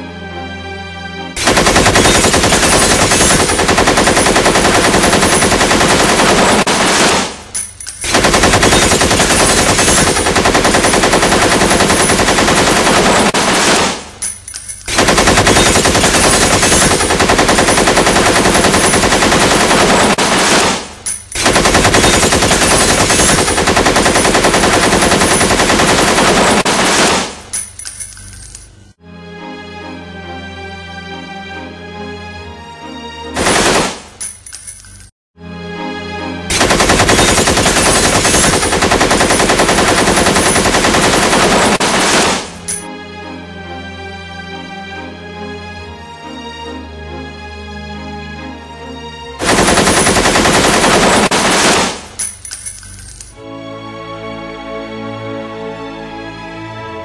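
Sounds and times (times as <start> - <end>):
machine-gun fire: 1.4 - 14.2, 14.9 - 27.5, 33.4 - 34.2, 36.5 - 42.7, 49.4 - 52.2.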